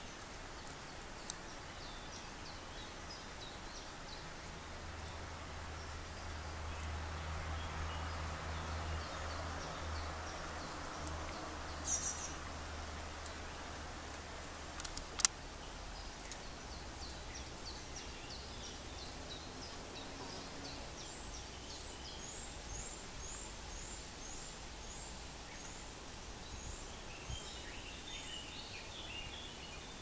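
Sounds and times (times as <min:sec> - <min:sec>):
sharp click: 0:14.8 - 0:15.4.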